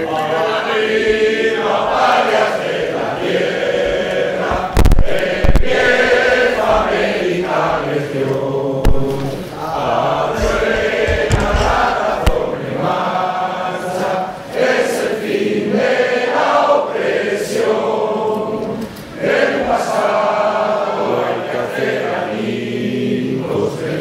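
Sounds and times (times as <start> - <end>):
group of voices singing: 0.0 - 24.0
loud knocks: 4.4 - 7.2, 8.8 - 12.6.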